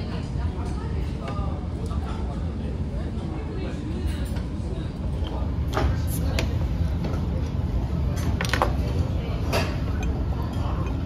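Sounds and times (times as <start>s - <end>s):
low room hum: 0.0s - 11.0s
tableware clinking: 9.4s - 11.0s.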